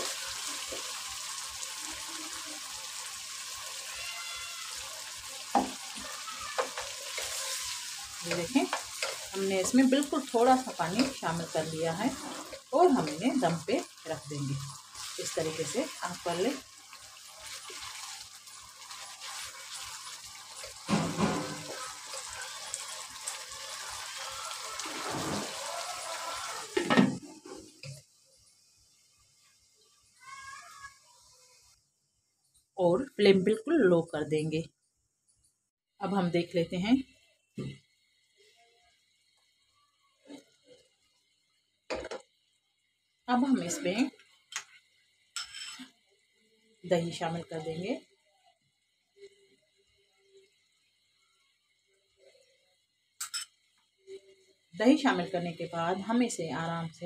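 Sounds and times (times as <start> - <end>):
water poured into hot oil: 0.0 - 28.1
vegetables sizzling in oil: 0.0 - 35.1, 35.9 - 57.0
spatula scraping a pan: 5.5 - 13.8, 14.6 - 28.0, 45.4 - 45.9.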